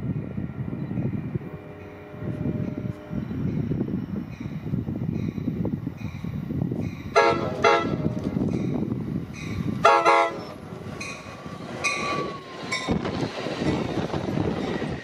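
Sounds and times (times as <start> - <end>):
train rumbling on rails: 0.0 - 15.0
train horn chord blasts: 7.2 - 8.2, 9.8 - 10.6.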